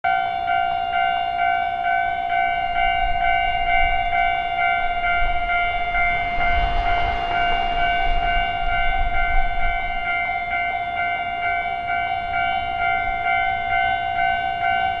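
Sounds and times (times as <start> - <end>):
railway crossing warning bell: 0.1 - 15.0
low rumble: 3.8 - 10.6.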